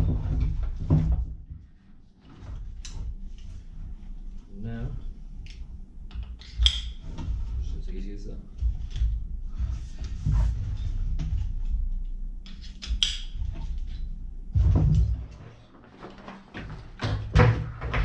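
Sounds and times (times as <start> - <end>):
straps and buckles rustling: 14.7 - 17.0.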